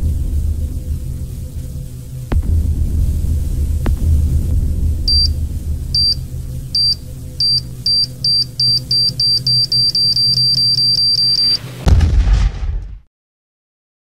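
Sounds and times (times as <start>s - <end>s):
loud blast: 0.0s - 9.9s, 11.5s - 13.1s
low droning music: 0.0s - 12.4s
high-pitched electronic beeps: 5.1s - 11.6s.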